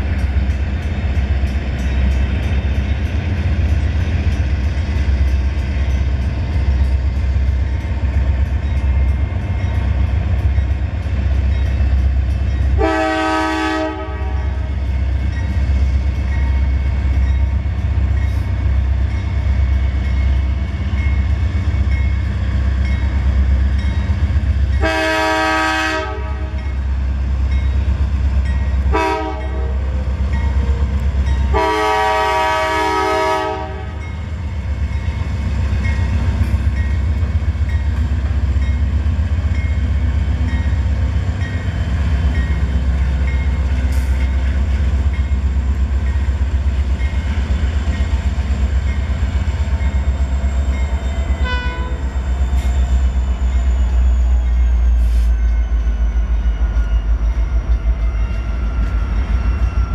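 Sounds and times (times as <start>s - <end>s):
locomotive air horn: 12.8s - 14.7s, 24.8s - 26.6s, 28.9s - 29.9s, 31.5s - 34.0s, 51.4s - 52.2s.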